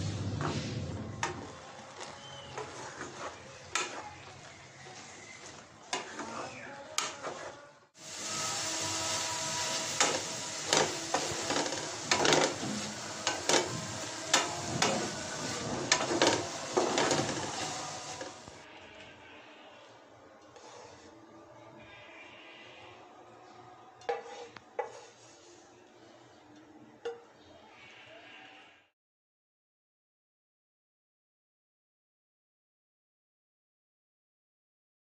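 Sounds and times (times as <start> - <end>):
leaves sizzling in pan: 0.0 - 6.3, 7.0 - 18.7, 24.1 - 26.0
wooden spatula scraping pan: 0.4 - 18.6, 20.4 - 21.2, 24.0 - 26.3.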